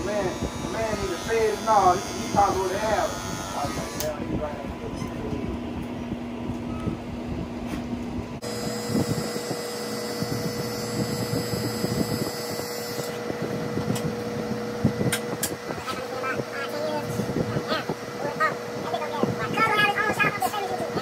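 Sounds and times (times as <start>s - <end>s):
cordless trimmer humming: 0.0s - 4.2s, 8.4s - 21.0s
electric hair clippers buzzing: 0.0s - 4.3s, 8.4s - 18.0s.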